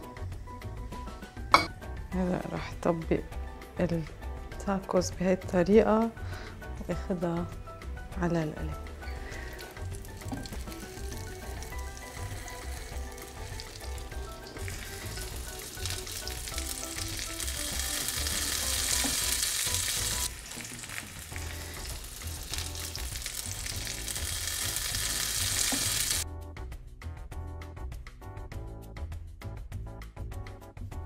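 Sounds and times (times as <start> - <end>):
background music: 0.0 - 31.0
food sizzling in hot oil: 7.8 - 26.2.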